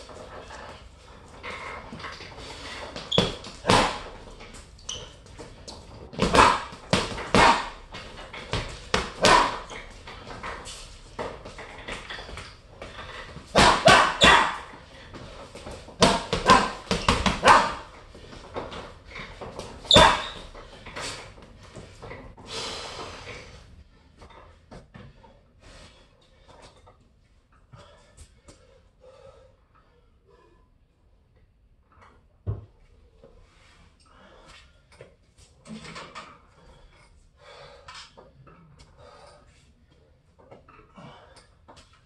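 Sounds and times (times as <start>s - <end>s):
punches hitting heavy bag: 3.2s - 4.2s, 6.1s - 9.9s, 13.5s - 14.8s, 15.9s - 18.0s, 19.9s - 20.5s.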